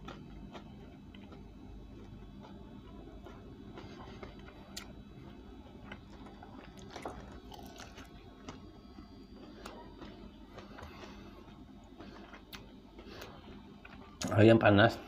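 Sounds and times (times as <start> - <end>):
faint steady hum: 0.0 - 15.0
crispy chicken tearing and chewing: 5.7 - 12.8.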